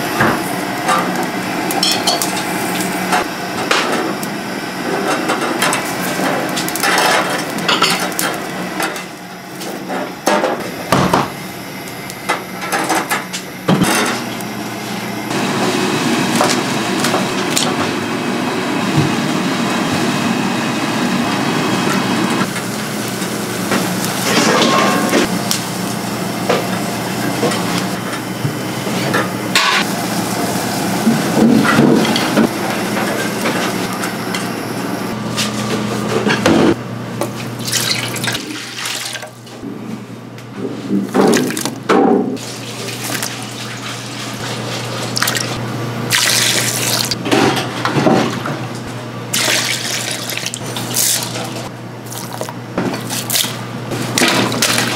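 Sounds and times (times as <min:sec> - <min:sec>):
gas burner flame: 0:00.0 - 0:37.6
onions charring: 0:44.9 - 0:47.2, 0:49.3 - 0:54.9
water poured into metal pot: 0:46.1 - 0:47.2.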